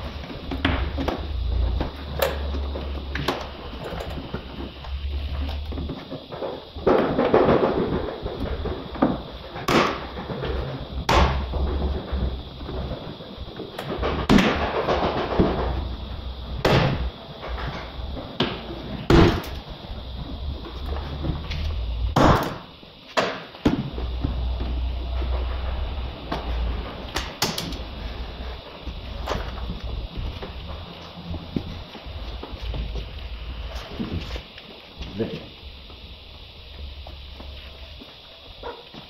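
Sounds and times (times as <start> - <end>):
rustling and scraping: 27.7 - 36.0.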